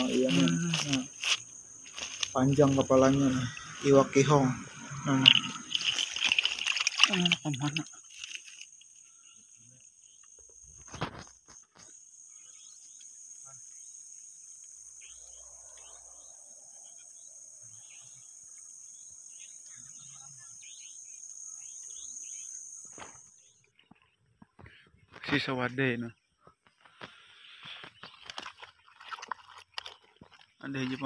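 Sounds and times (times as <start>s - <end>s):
short insect chirps: 0.0s - 23.8s
insects trilling: 0.0s - 31.0s.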